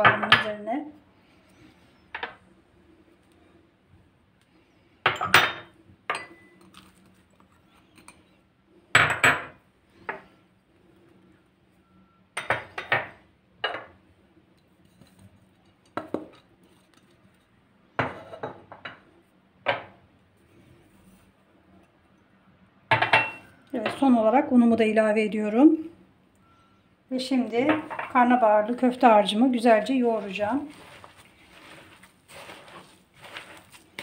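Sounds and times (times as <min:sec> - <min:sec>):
glass bowls clinking: 0:05.1 - 0:06.8, 0:22.9 - 0:24.0.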